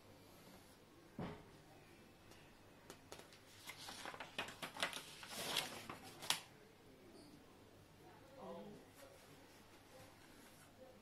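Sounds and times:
crackling rustle: 0:03.1 - 0:06.5.

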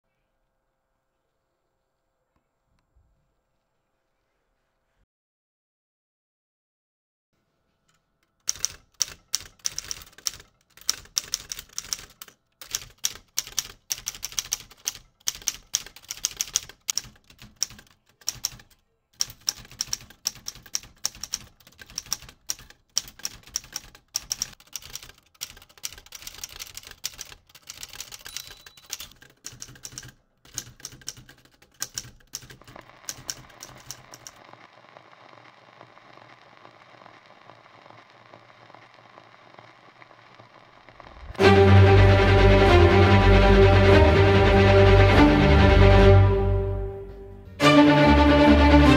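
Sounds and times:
manual typewriter clacking: 0:08.3 - 0:34.5
steady hiss: 0:32.6 - 0:41.4.

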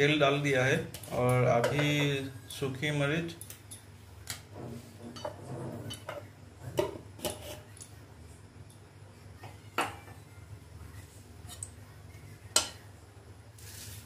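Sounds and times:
low steady hum: 0:00.0 - 0:14.0
chillies crackling in hot oil: 0:13.6 - 0:14.0.

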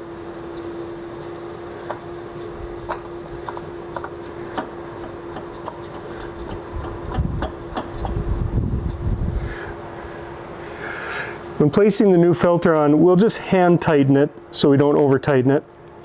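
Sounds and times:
steady hum: 0:00.0 - 0:16.0
oil filter clicking and rubbing: 0:01.1 - 0:09.0.

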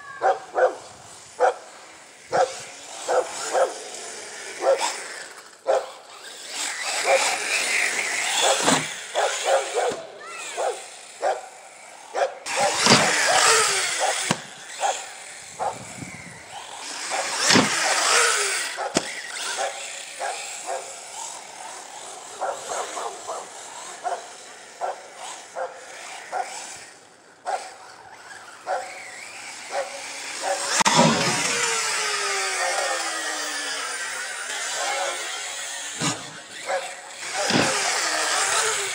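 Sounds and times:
rc truck motor and tyres: 0:00.0 - 0:38.9
knocks and scrapes from bumps: 0:08.3 - 0:09.0, 0:12.6 - 0:14.5, 0:30.7 - 0:31.6, 0:37.2 - 0:38.1.

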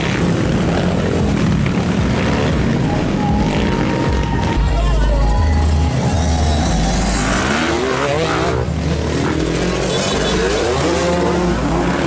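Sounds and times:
motorcycles revving past: 0:00.0 - 0:04.4, 0:07.1 - 0:12.0.

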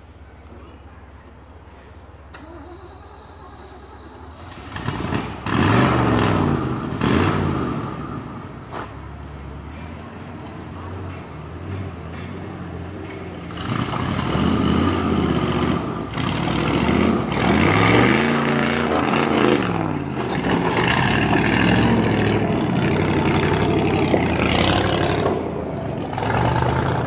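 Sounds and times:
pickup truck engine revving: 0:02.4 - 0:08.8, 0:12.7 - 0:27.0.

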